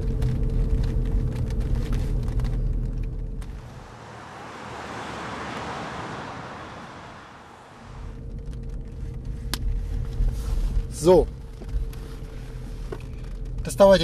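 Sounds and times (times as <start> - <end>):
car cabin rumble: 0.0 - 14.0
car driving past: 3.4 - 8.2.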